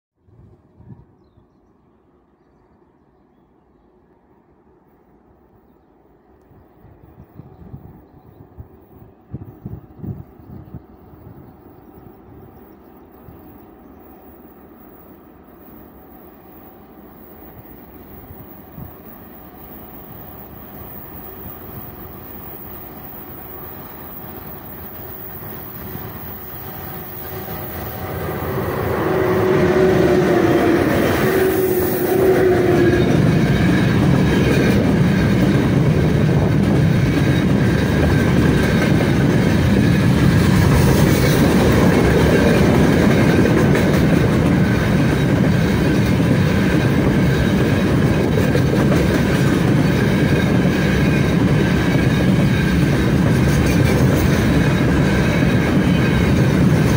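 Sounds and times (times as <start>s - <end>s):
electric locomotive whine: 0.2s - 56.9s
wheels clacking over rail joints: 32.5s - 56.9s.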